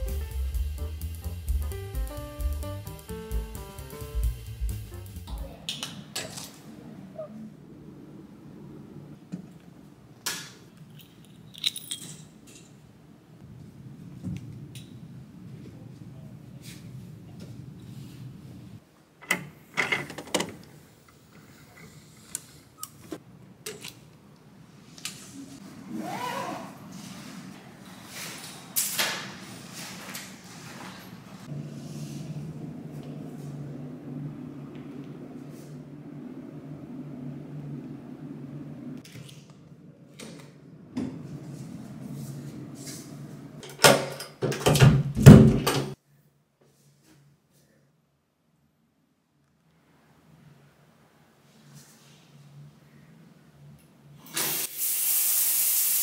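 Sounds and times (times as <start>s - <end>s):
steady low hum: 0.0s - 5.7s, 31.4s - 43.6s.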